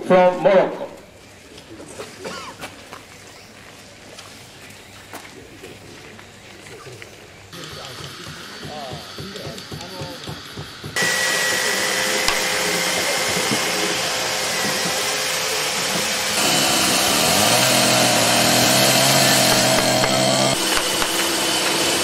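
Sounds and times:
power tools whining on wood: 7.6 - 22.0
louder tool with low hum: 11.0 - 22.0.

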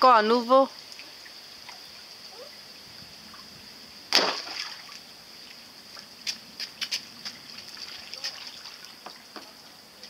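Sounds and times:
toy splashing into pond: 0.8 - 2.6, 4.1 - 9.5.

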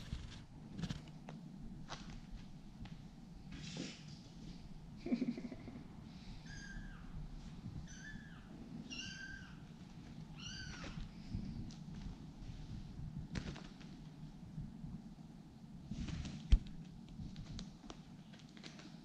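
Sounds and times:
kittens meowing: 6.4 - 7.2, 7.8 - 9.7, 10.3 - 11.1.

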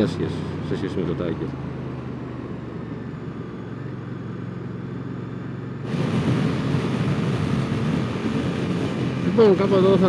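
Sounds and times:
motorcycle engine accelerating: 0.0 - 10.0
wind noise: 5.8 - 10.0.

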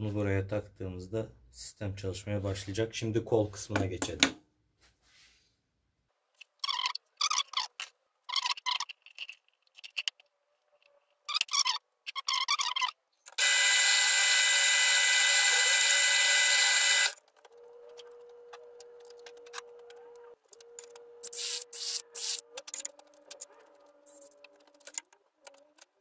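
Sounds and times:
scratching sounds: 6.4 - 13.4, 16.4 - 26.0
drill press whirring: 13.4 - 17.2.

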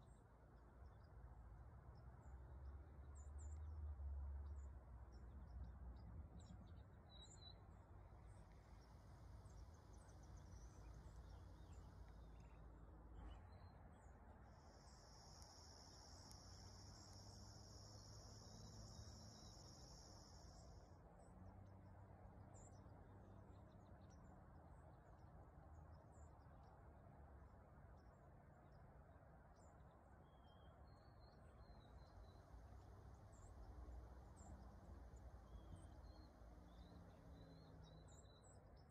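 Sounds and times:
faint high ticks: 14.6 - 20.8.

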